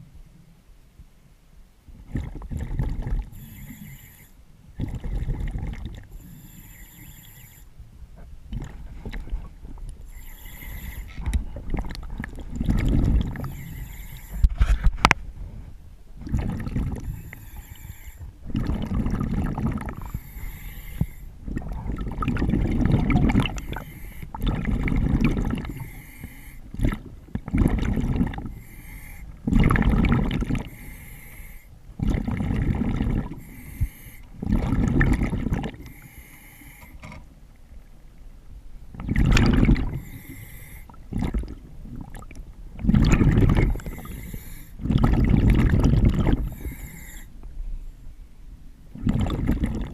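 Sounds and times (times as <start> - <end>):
gurgling exhaled bubbles: 2.0 - 4.0, 4.8 - 7.2, 8.5 - 14.8, 16.2 - 26.0, 26.7 - 28.8, 29.4 - 31.0, 32.0 - 36.1, 38.9 - 47.2, 48.9 - 49.9
hissing regulator inhalations: 3.3 - 4.4, 6.1 - 7.7, 10.0 - 11.3, 13.4 - 14.6, 17.0 - 18.3, 20.0 - 21.3, 23.5 - 24.4, 25.7 - 26.7, 28.5 - 29.4, 30.7 - 31.7, 33.3 - 34.4, 35.8 - 37.2, 40.0 - 41.0, 43.7 - 44.8, 46.4 - 47.4.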